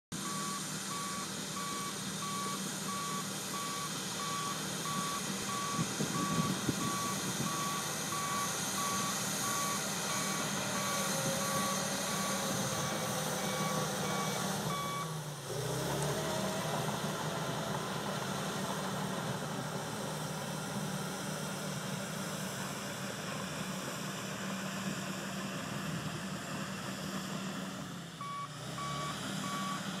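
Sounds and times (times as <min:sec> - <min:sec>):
diesel engine running: 0:00.1 - 0:30.0
backup alarm beeping: 0:00.2 - 0:15.1, 0:28.2 - 0:29.8.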